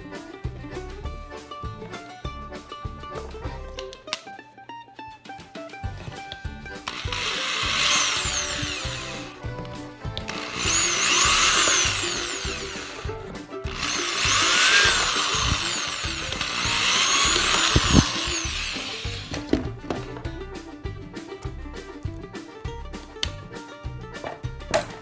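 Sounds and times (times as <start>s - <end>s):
background music: 0.0s - 25.0s
cordless drill whining: 6.8s - 9.4s, 10.2s - 13.1s, 13.7s - 19.5s.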